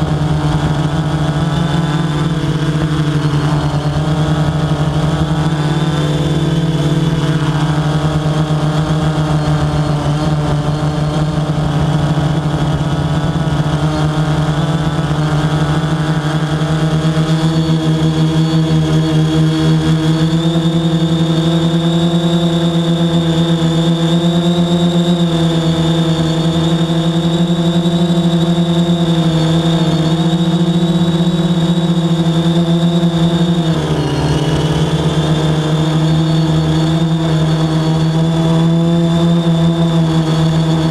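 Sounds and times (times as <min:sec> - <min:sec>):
drone motors humming: 0:00.0 - 0:40.9.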